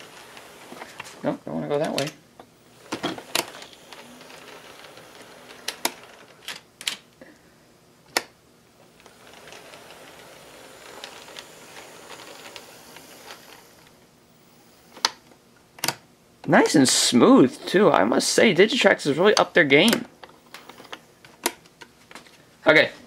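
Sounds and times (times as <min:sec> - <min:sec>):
model train motor whirring: 0:00.0 - 0:01.2, 0:02.6 - 0:06.6, 0:08.9 - 0:15.4, 0:17.7 - 0:21.0.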